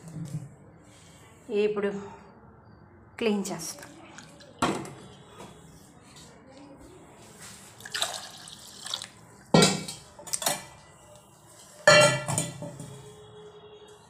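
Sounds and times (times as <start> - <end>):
water sloshing in a pot: 7.7 - 10.7
steel pots clanking: 11.8 - 12.9.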